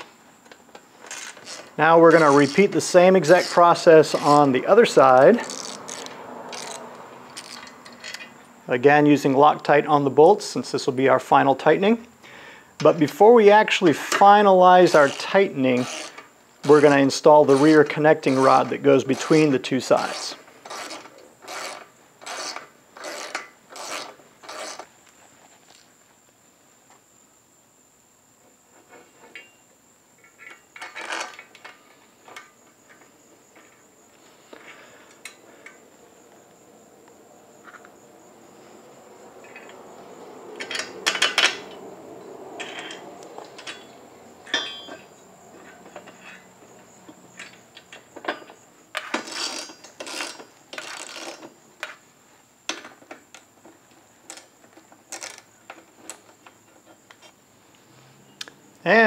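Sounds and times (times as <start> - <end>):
metal parts clinking and clattering: 5.3 - 8.4, 40.6 - 41.8, 42.6 - 46.5, 47.4 - 51.5.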